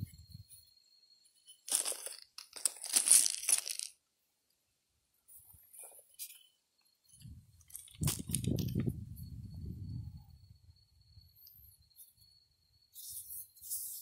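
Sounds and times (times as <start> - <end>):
rough crunching scraping: 1.6 - 4.0, 7.7 - 8.9.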